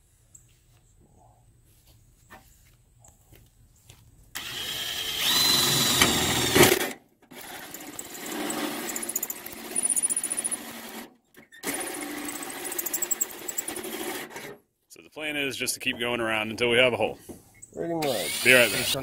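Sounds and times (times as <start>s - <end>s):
drill hole saw screeching on metal: 4.4s - 6.7s, 7.4s - 10.9s, 18.0s - 19.0s.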